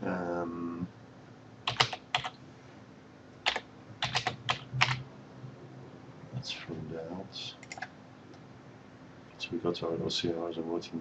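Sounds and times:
keyboard keystroke clicks: 0:01.7 - 0:02.4, 0:07.6 - 0:07.9.

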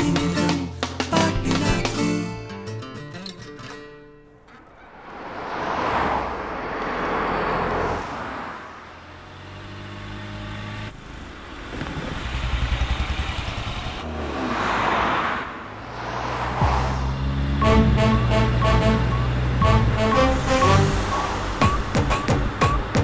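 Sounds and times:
cars driving past: 0:03.8 - 0:23.0
low engine hum: 0:04.6 - 0:22.6.

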